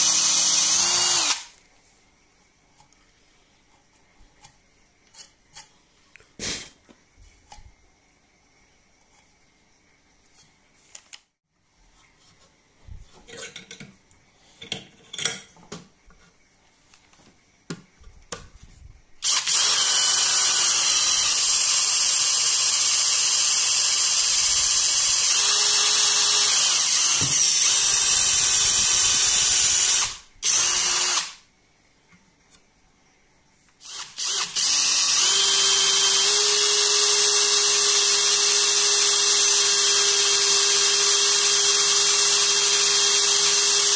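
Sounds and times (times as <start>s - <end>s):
cordless drill whining: 0.0s - 1.5s, 19.2s - 31.4s, 33.8s - 43.9s.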